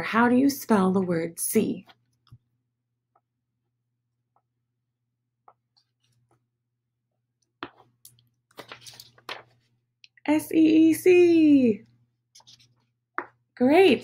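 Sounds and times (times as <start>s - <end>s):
paper and crayon clicks and rustling: 8.5s - 9.6s.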